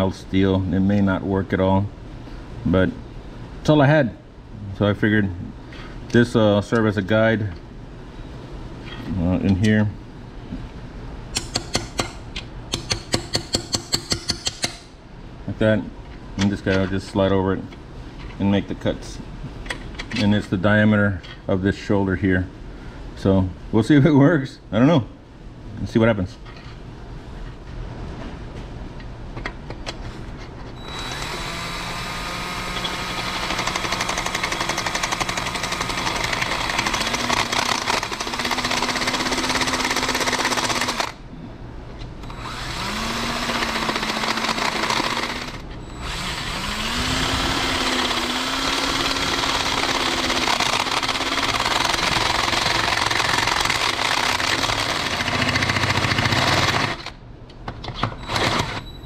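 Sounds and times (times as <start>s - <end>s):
drill cutting metal: 30.8s - 41.2s, 42.2s - 57.1s, 58.2s - 58.8s.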